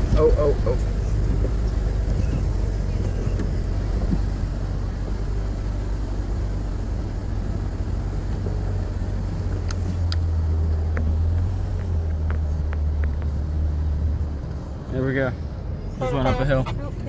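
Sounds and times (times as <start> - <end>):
vehicle engine pulling uphill: 0.0 - 17.0.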